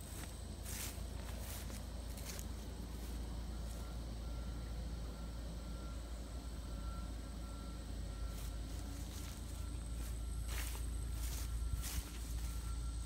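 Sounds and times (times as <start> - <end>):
rustling step in grass: 0.0 - 3.8, 8.4 - 12.7
faint high beeps: 3.4 - 13.0.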